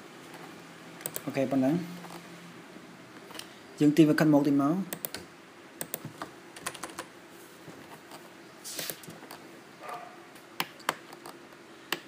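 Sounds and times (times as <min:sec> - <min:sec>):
keyboard and mouse clicking: 0:01.0 - 0:01.3, 0:04.9 - 0:07.1, 0:10.6 - 0:12.0.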